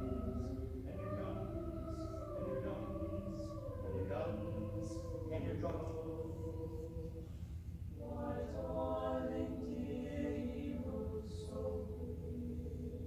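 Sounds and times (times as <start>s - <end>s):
mixed choir singing sustained chords: 0.0s - 13.0s.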